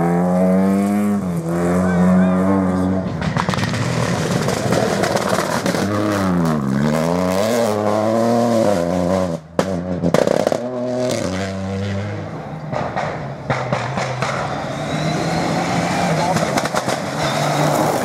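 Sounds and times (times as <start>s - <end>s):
rally car engine revving: 0.0s - 18.0s
sharp cracks: 16.3s - 17.2s.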